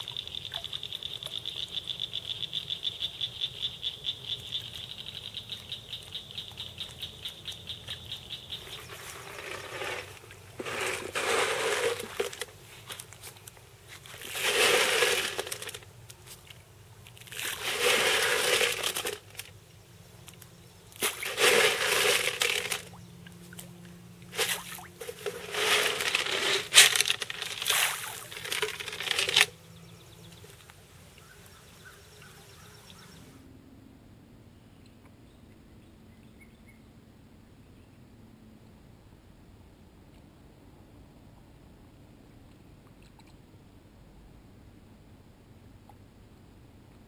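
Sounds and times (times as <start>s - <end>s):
fish splashing and slurping: 8.5s - 13.0s, 14.0s - 15.9s, 17.0s - 19.5s, 21.0s - 29.5s.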